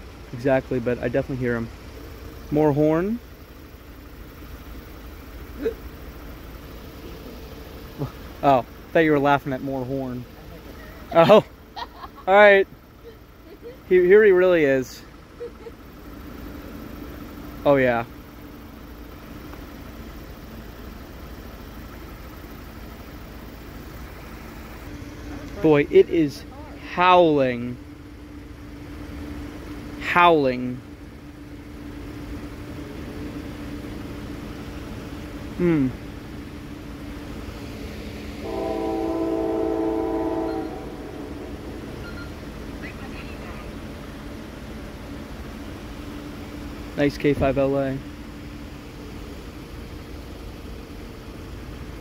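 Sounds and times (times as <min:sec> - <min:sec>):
engine rumbling: 0:00.0 - 0:52.0
train noise: 0:37.6 - 0:44.0
locomotive air horn blast: 0:38.4 - 0:42.5.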